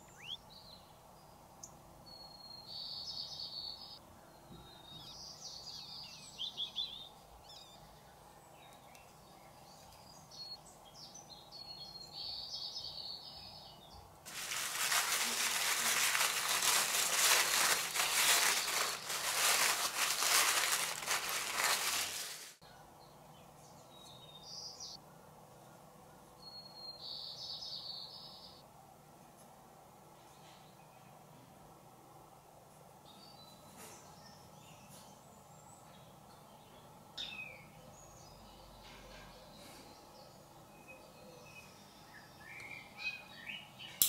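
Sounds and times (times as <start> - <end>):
faint bird chirps: 0.0 - 13.8
tissue paper crinkling: 14.3 - 22.6.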